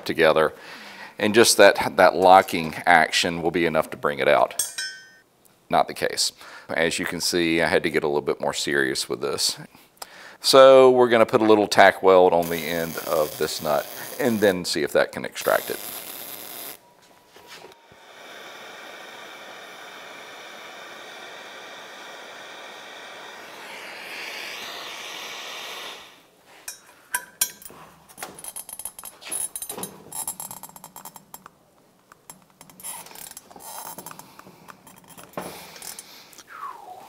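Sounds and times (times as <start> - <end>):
welding arc buzzing: 12.4 - 14.7, 15.4 - 16.8.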